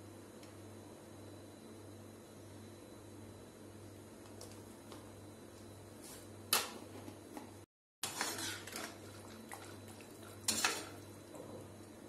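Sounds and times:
metal spoon scraping pan: 0:08.0 - 0:09.0, 0:10.5 - 0:11.0.

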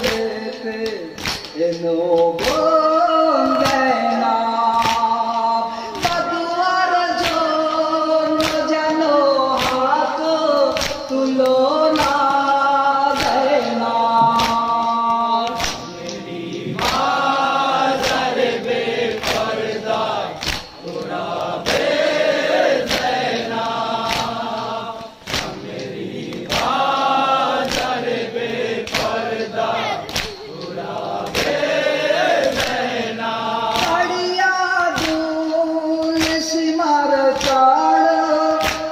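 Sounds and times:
chest-beating slaps: 0:00.0 - 0:02.7, 0:10.6 - 0:12.5, 0:13.1 - 0:34.2, 0:35.0 - 0:36.4
men chanting a lament: 0:00.0 - 0:38.9.

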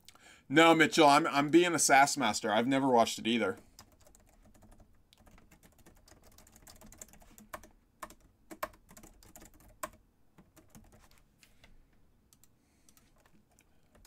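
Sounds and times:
computer keyboard typing: 0:03.8 - 0:11.2, 0:12.3 - 0:14.0.

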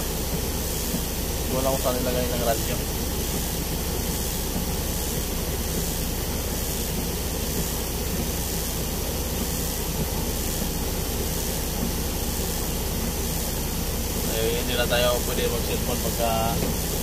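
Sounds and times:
truck engine idling: 0:00.0 - 0:17.0
even hiss: 0:10.4 - 0:17.0.

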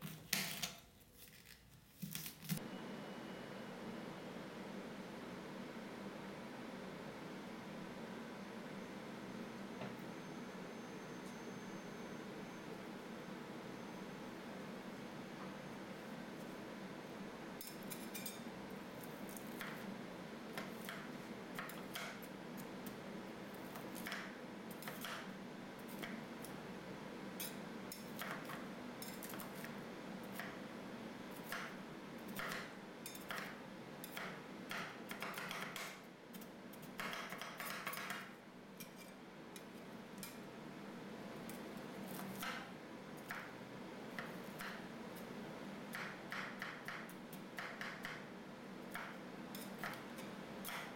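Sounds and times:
steady low hum: 0:02.6 - 0:35.0.

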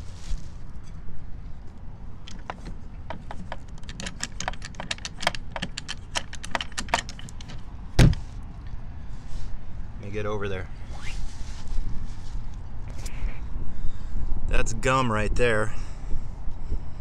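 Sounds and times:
latch and hinge rattling: 0:02.3 - 0:08.2
loud thump: 0:08.0 - 0:08.3.

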